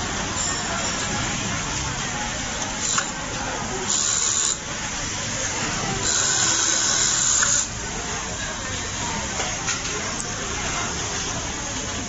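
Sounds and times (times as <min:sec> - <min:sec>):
factory noise: 0:00.0 - 0:12.0
sewing machine hiss bursts: 0:03.8 - 0:04.6, 0:06.0 - 0:07.7.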